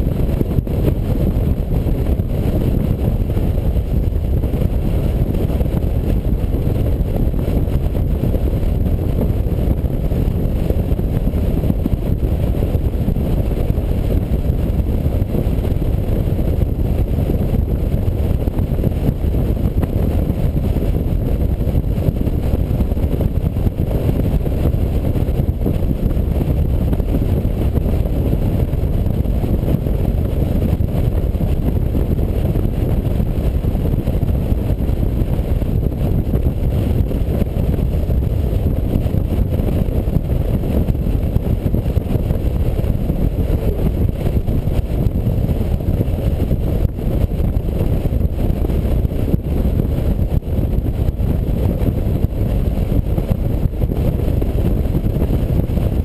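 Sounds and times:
road noise: 0.0 - 50.0
wind buffeting: 0.0 - 56.0
motorcycle engine: 41.5 - 45.7.

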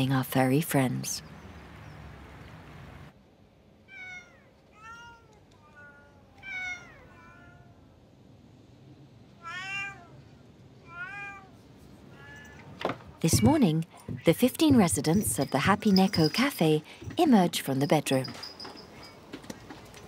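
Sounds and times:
cats meowing: 3.9 - 7.9, 9.4 - 12.8.

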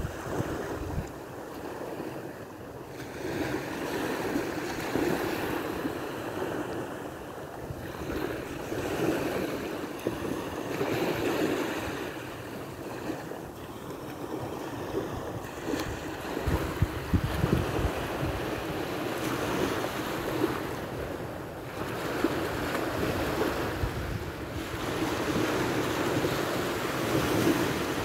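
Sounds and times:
wind on microphone: 0.0 - 1.9, 14.3 - 28.0
small waves washing onto sand: 0.0 - 28.0.

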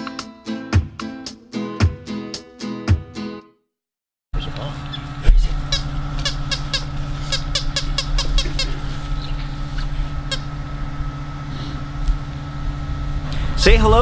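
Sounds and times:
small bird chirping: 4.4 - 10.5
steady low hum: 4.4 - 14.0.

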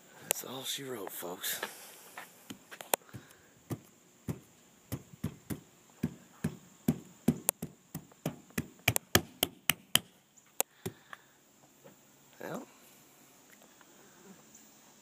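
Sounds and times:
sharp taps and knocks: 2.5 - 10.1
dull thuds: 2.5 - 10.2, 10.8 - 11.1.

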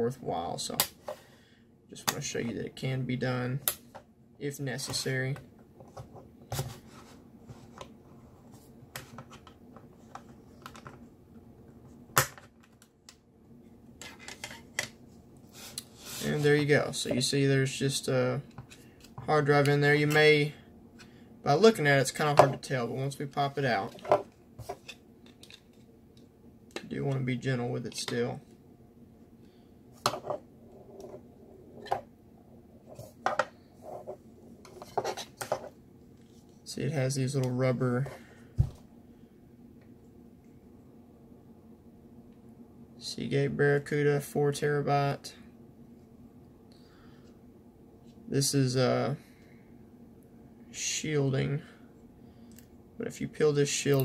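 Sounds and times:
soft rubbing: 15.1 - 16.7.

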